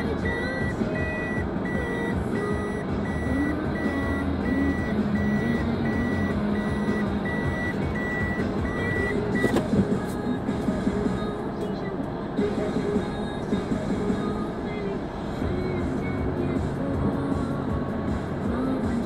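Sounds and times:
reversing alarm beeping: 0:00.0 - 0:09.6
engine running: 0:00.0 - 0:19.0.

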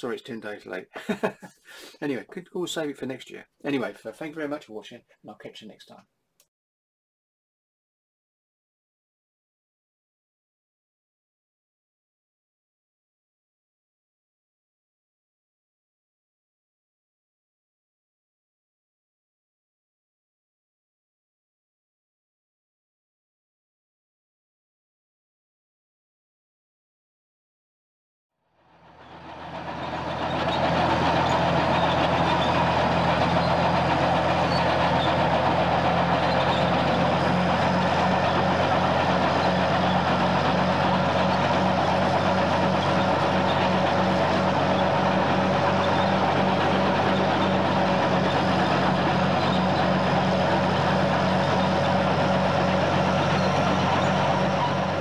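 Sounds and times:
large vehicle engine droning: 0:28.6 - 0:55.0.

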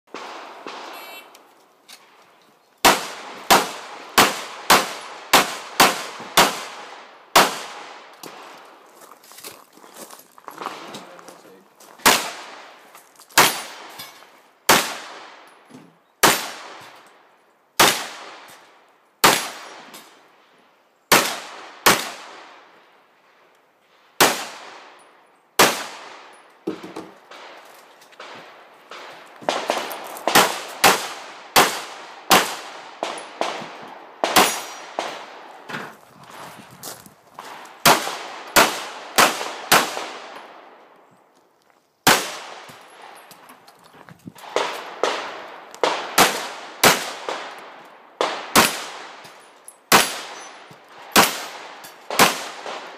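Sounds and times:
pistol shots: 0:02.8 - 0:08.4, 0:12.0 - 0:12.8, 0:13.4 - 0:13.9, 0:14.7 - 0:15.4, 0:16.2 - 0:17.0, 0:17.8 - 0:18.6, 0:19.2 - 0:19.9, 0:21.1 - 0:22.6, 0:24.2 - 0:24.9, 0:25.6 - 0:27.6, 0:28.2 - 0:35.5, 0:37.8 - 0:40.6, 0:42.0 - 0:43.2, 0:44.4 - 0:49.3, 0:49.9 - 0:52.9.

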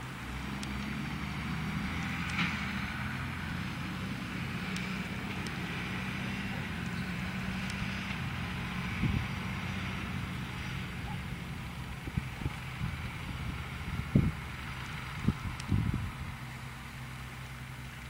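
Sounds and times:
tractor diesel engine: 0:00.0 - 0:18.0
light clicks: 0:00.6 - 0:01.0, 0:04.7 - 0:05.6.

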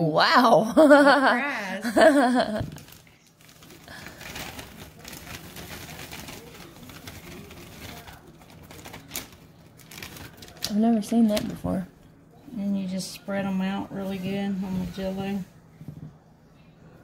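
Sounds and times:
plastic bag crinkling: 0:02.0 - 0:11.6.

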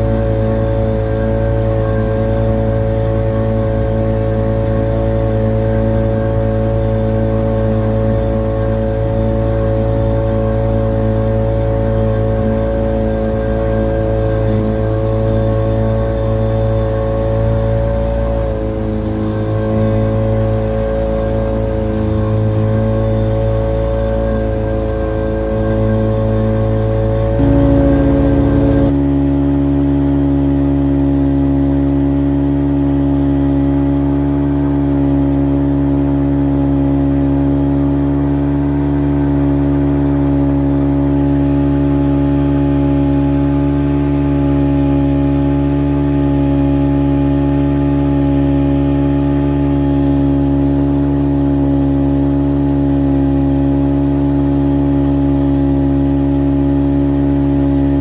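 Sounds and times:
motorboat engine running: 0:00.0 - 0:58.0.

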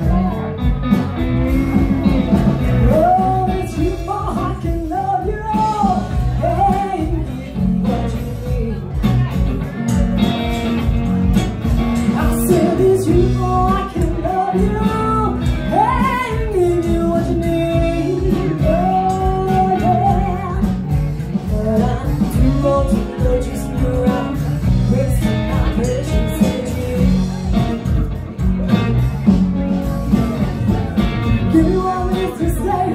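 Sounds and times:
acoustic guitar: 0:00.0 - 0:32.9
electric bass: 0:00.0 - 0:32.9
electric guitar: 0:00.0 - 0:32.9
woman singing: 0:01.3 - 0:09.6, 0:12.0 - 0:28.0, 0:31.4 - 0:32.9.

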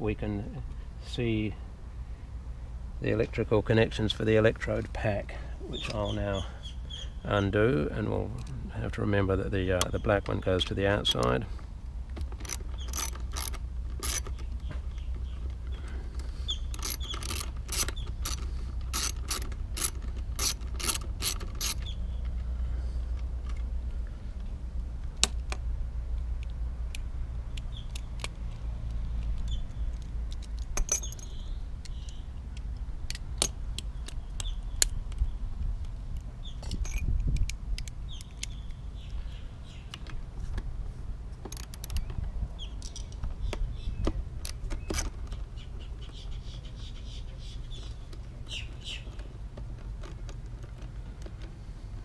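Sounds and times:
low steady rumble: 0:00.0 - 0:52.0
metallic clicks of hand tools: 0:12.1 - 0:22.4, 0:26.3 - 0:35.3, 0:36.1 - 0:39.2, 0:41.4 - 0:42.2.

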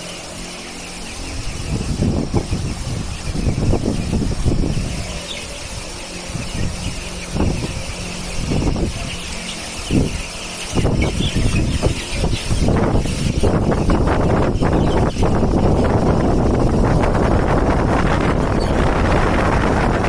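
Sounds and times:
fan airflow rumbling on microphone: 0:00.0 - 0:20.0
fan motor hum and hiss: 0:00.0 - 0:20.0.

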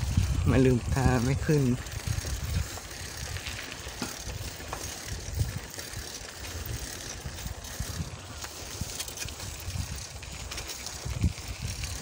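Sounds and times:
bicycle tyre and frame noise: 0:00.0 - 0:12.0
wind rumble on microphone: 0:00.0 - 0:12.0.

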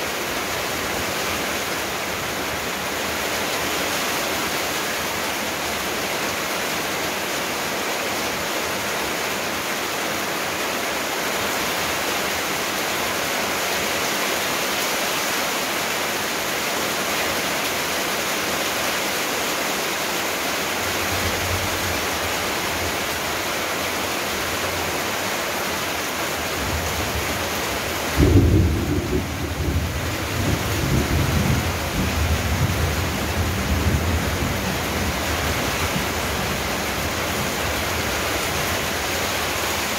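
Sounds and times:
steady rain hissing: 0:00.0 - 0:39.9
thunder rumbling: 0:28.2 - 0:36.1.

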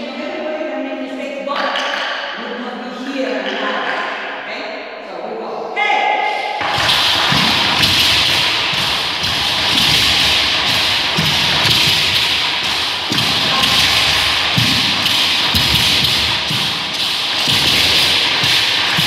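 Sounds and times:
deep wooden drum thumps: 0:06.6 - 0:19.0.

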